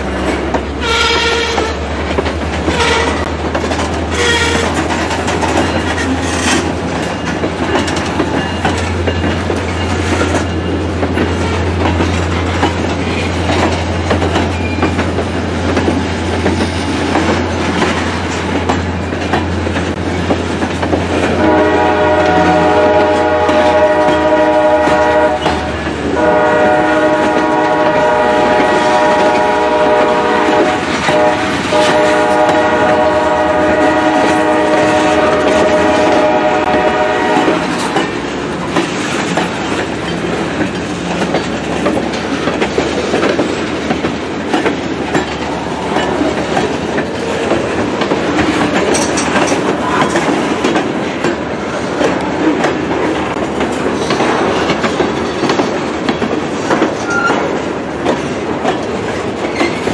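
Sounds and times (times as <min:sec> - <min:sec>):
train wheels clattering on rails: 0:00.0 - 0:59.9
train horn blasts: 0:00.8 - 0:01.9, 0:02.7 - 0:03.3, 0:04.1 - 0:04.8, 0:21.2 - 0:38.0.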